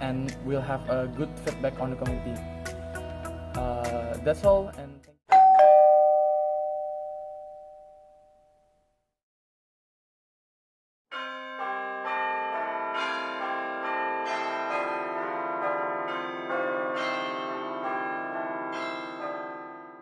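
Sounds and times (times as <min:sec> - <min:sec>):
bell-like chiming music: 0:05.3 - 0:08.0, 0:11.1 - 0:20.0.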